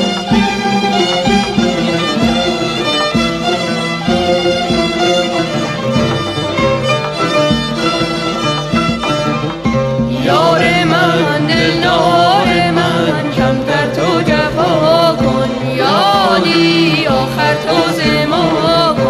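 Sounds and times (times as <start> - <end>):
instrumental accompaniment: 0.0 - 19.0
person singing ornamented melody: 10.1 - 19.0.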